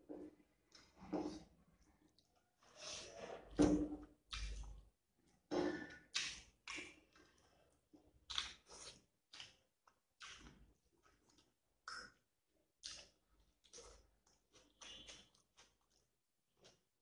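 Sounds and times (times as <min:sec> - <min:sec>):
chewing and lip-smacking: 0:06.1 - 0:16.9.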